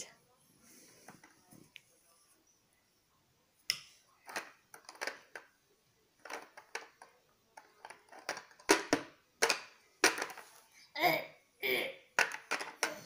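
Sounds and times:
plastic blocks clicking together: 4.2s - 5.5s, 6.2s - 10.4s, 12.2s - 13.0s.

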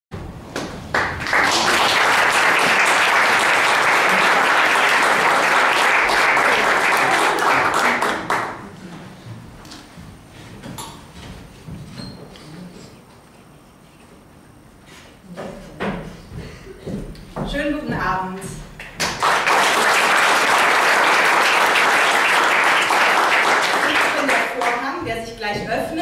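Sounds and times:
audience applauding: 0.9s - 8.7s, 18.9s - 24.8s.

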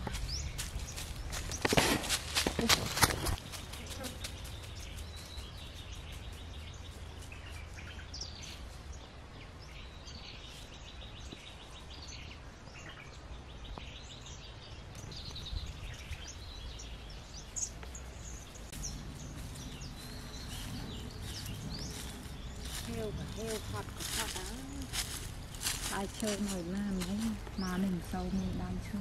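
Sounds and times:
small birds chirping: 0.0s - 29.0s
low rumble: 15.1s - 29.0s.

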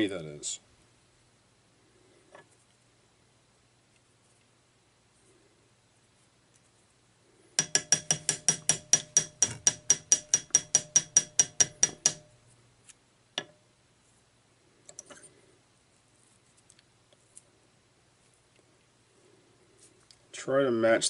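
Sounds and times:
metal stacker tapping on bench: 7.6s - 12.3s.

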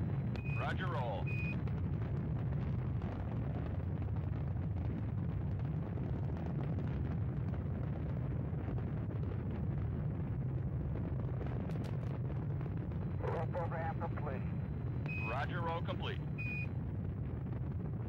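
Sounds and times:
rocket engines roaring: 0.0s - 6.4s, 11.8s - 18.0s.

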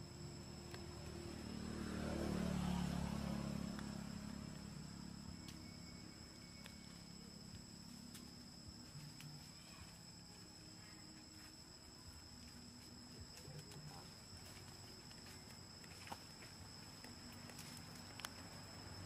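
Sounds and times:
high-pitched insect drone: 0.0s - 19.0s
faint ticks: 6.6s - 10.0s, 13.4s - 18.6s.

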